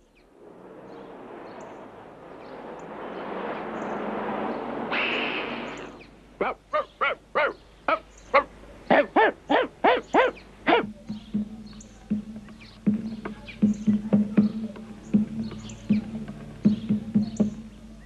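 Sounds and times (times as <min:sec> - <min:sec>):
rushing noise: 0:00.0 - 0:06.4
cartoon dog yaps: 0:06.4 - 0:10.8.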